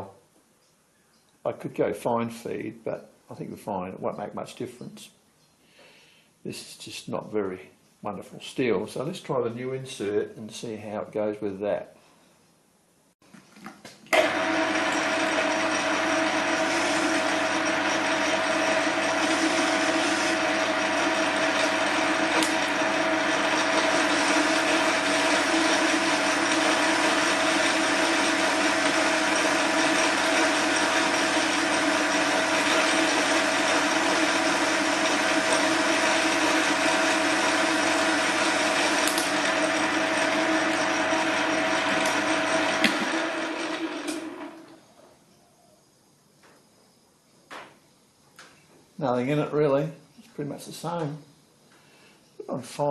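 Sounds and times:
lathe cutting steel bar: 0:14.2 - 0:44.6
metal lathe gear whine: 0:14.2 - 0:44.9.

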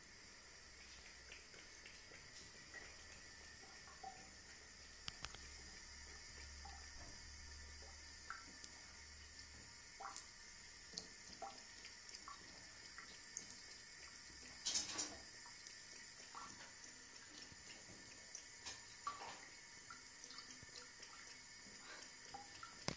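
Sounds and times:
water drips and splashes: 0:00.1 - 0:22.9
water trickling into basin: 0:00.2 - 0:22.9.

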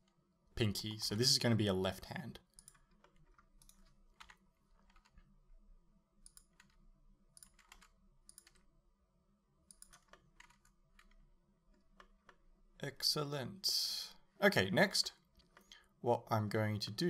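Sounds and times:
low steady hum: 0:00.0 - 0:17.0
keyboard and mouse clicks: 0:02.5 - 0:05.3, 0:06.2 - 0:08.7, 0:09.6 - 0:12.4.

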